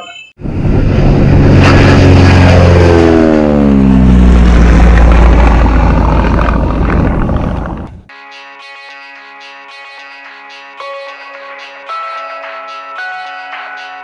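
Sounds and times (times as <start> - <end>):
propeller aircraft flying past: 0.4 - 8.1.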